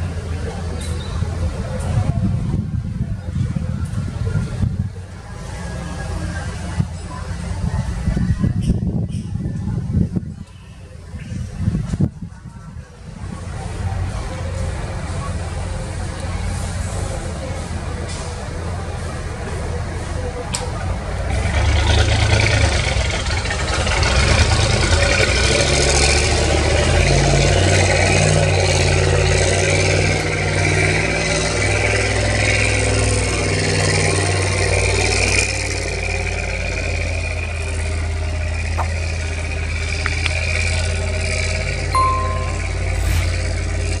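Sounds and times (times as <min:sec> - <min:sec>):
heavy diesel engines running: 0:00.0 - 0:44.0
short high tone: 0:42.0 - 0:43.6.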